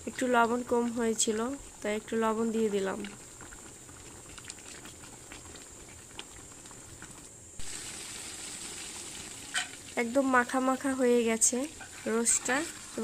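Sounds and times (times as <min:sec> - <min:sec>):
gravy bubbling in a pot: 0:00.0 - 0:13.0
steady hiss: 0:05.8 - 0:13.0.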